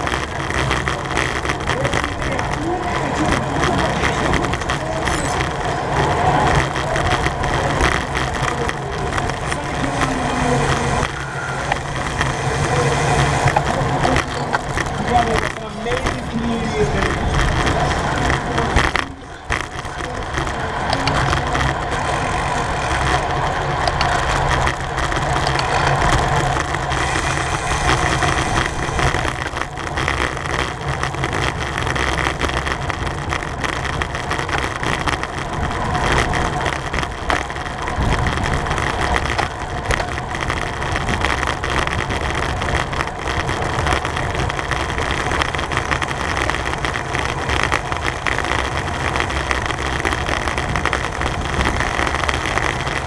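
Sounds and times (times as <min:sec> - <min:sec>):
bicycle tyre and road noise: 0:00.0 - 0:53.0
wind buffeting microphone: 0:11.7 - 0:53.0.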